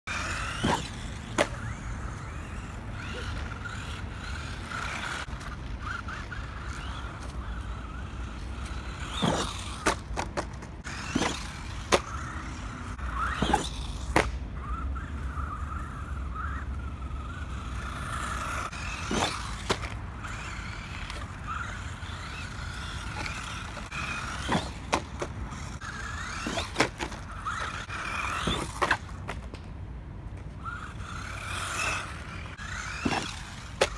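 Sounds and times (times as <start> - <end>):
electric motor whining: 30.6 - 33.9.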